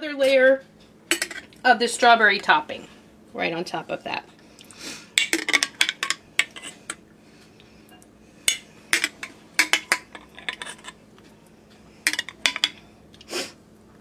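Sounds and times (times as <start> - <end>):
spoon scraping glass: 6.0 - 7.0, 8.5 - 11.0.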